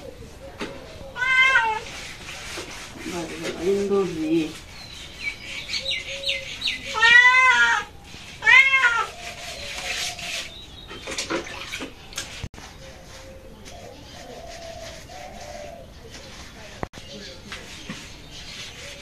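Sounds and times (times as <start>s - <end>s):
cat meowing: 1.2s - 1.9s, 6.9s - 9.1s.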